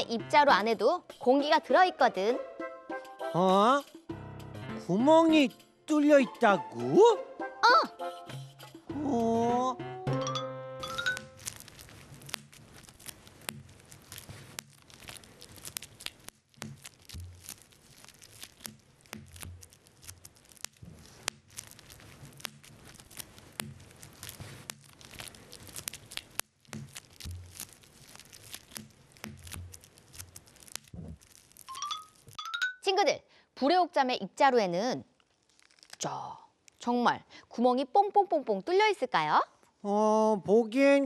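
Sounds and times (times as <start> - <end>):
bubble wrap popping: 10.8 - 32.4, 35.1 - 36.8
plastic sheet crinkling: 10.9 - 32.4, 35.2 - 36.1.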